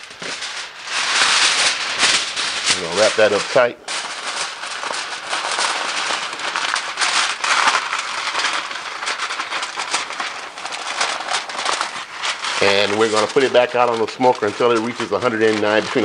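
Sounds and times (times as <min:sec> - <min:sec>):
aluminum foil crinkling: 0:00.0 - 0:16.0.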